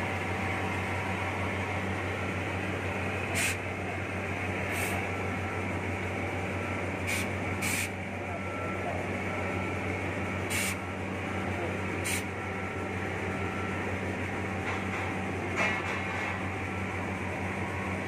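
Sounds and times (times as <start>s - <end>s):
cutting torch flame hissing: 3.3s - 3.7s, 4.6s - 5.0s, 7.0s - 8.0s, 10.5s - 10.8s.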